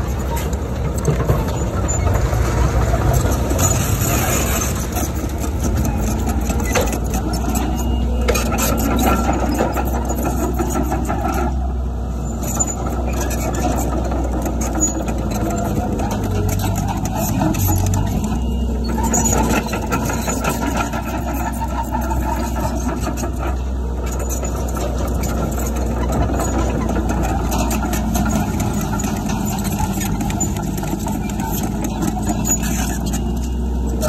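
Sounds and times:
diesel engine running: 0.0s - 34.0s
machinery clicks and rattles: 12.4s - 34.0s.

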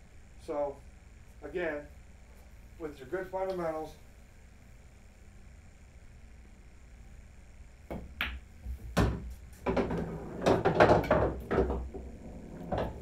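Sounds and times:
balls clattering: 9.0s - 13.0s
cue tip clicking ball: 9.0s - 13.0s
pool balls clicking together: 9.0s - 13.0s.

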